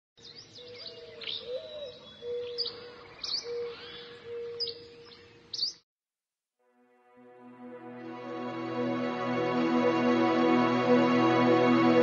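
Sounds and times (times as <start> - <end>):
birds chirping: 0.2 - 5.8.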